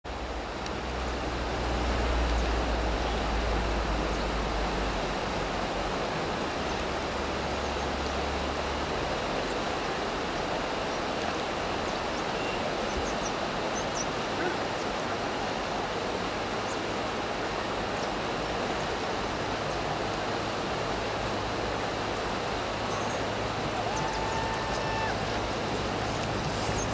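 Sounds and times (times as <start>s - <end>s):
river rushing over rocks: 0.1s - 26.9s.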